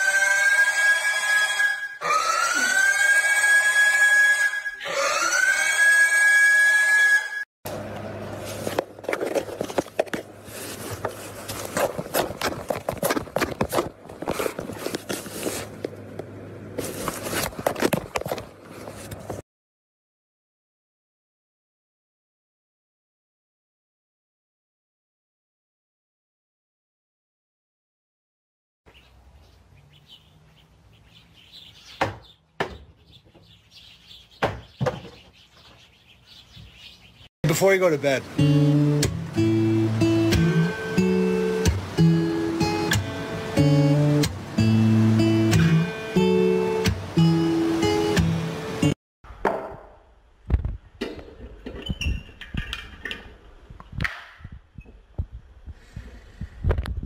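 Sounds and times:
birds chirping faintly: 0:28.9 - 0:37.3
balance board striking paving: 0:49.3 - 0:50.0.

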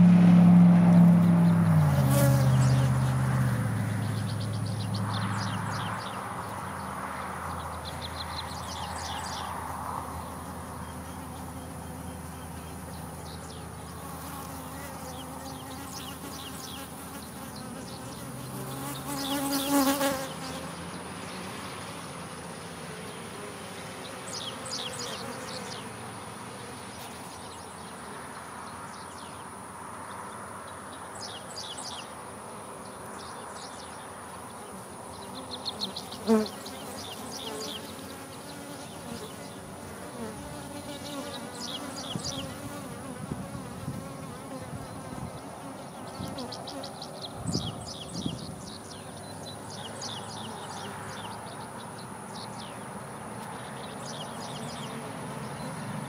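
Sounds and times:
bee swarm humming: 0:00.0 - 0:28.2, 0:34.6 - 0:47.4.

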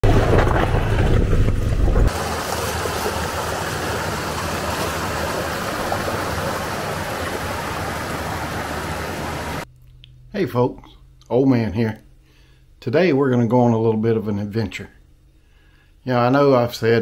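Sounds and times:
truck engine running low: 0:00.0 - 0:09.6
water splashing: 0:02.0 - 0:09.6
waterfall over rock: 0:02.1 - 0:09.6.

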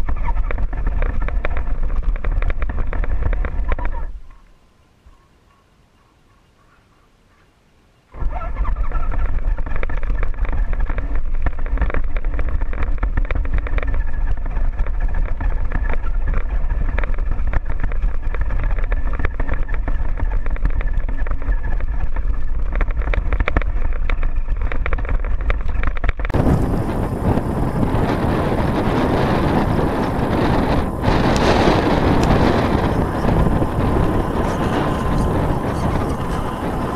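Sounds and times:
wind buffeting microphone: 0:00.0 - 0:04.3, 0:08.2 - 0:36.9
motor and gear whine: 0:26.4 - 0:36.9.

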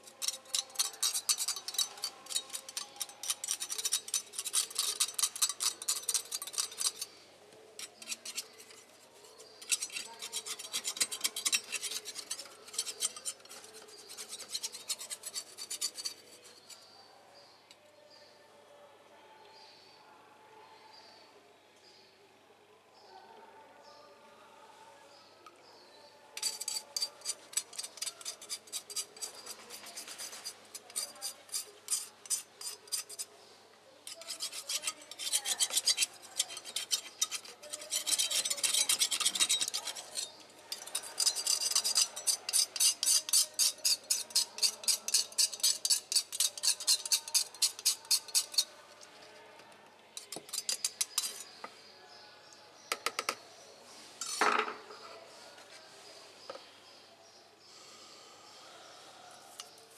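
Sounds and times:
metal spoon scraping metal: 0:00.0 - 0:07.2, 0:07.8 - 0:16.9, 0:26.4 - 0:33.3, 0:34.1 - 0:49.1, 0:50.2 - 0:51.7, 0:54.2 - 0:55.1.

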